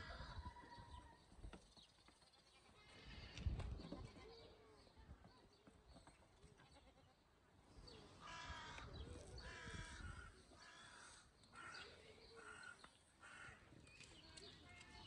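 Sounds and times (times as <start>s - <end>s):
bird harsh calls: 8.2s - 13.7s.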